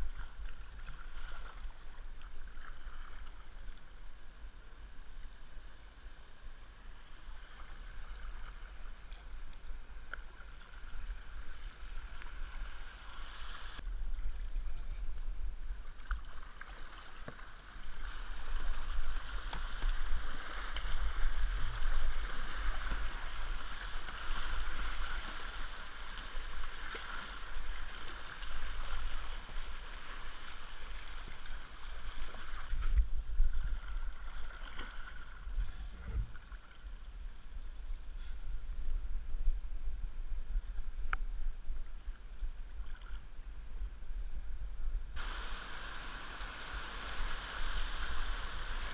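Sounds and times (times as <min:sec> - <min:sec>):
paddle strokes in water: 0:00.0 - 0:05.8, 0:06.4 - 0:43.9, 0:45.2 - 0:48.9
low rumble: 0:35.6 - 0:36.8
river rushing: 0:45.2 - 0:48.9.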